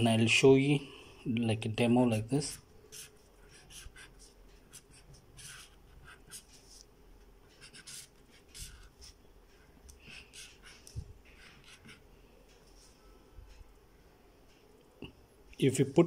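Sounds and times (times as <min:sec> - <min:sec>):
marker scratching on paper: 0:02.4 - 0:09.2, 0:10.0 - 0:12.0.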